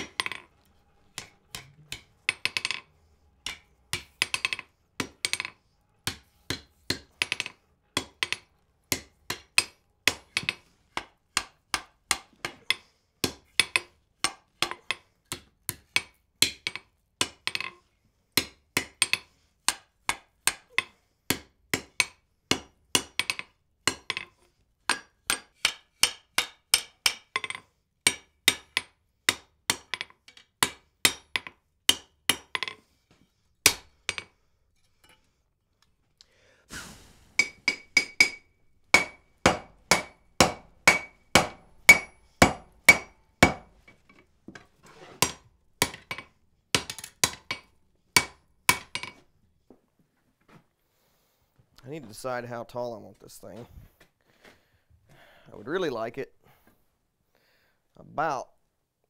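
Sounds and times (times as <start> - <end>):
hammer striking iron on anvil: 24.9 - 32.8, 33.6 - 34.3, 37.4 - 43.8, 45.2 - 49.2.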